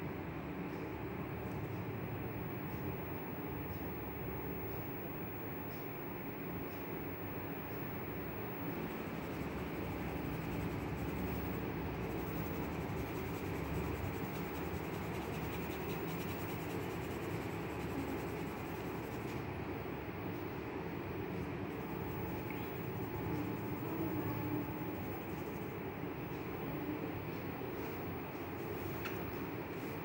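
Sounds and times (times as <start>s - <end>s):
background hiss and hum: 0.0s - 30.0s
pencil scratching on paper: 9.6s - 19.4s.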